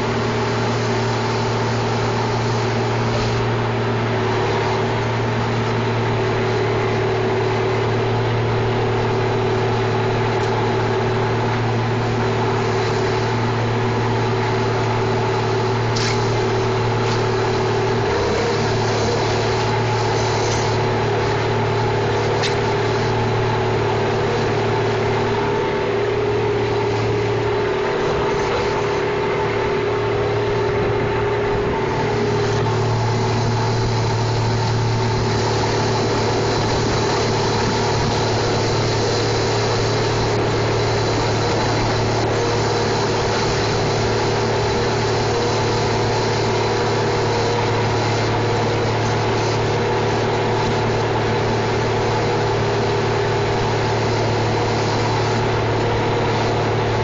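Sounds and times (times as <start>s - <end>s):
diesel engine running: 0.0s - 57.0s.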